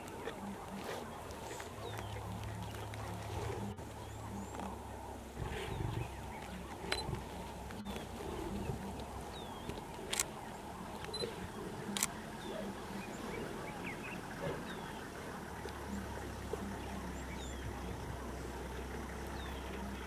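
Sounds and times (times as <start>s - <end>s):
low steady hum: 0.0s - 20.0s
small birds chirping: 0.0s - 20.0s
camera shutter clicks: 10.1s - 10.3s.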